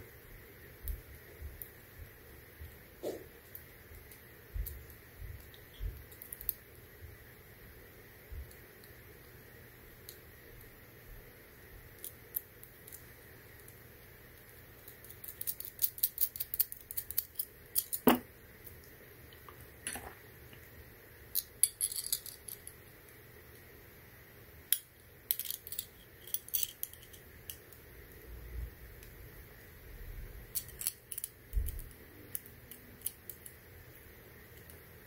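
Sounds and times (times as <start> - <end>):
small metallic clicks and clinks: 14.8 - 18.2, 21.3 - 22.8, 24.7 - 27.7.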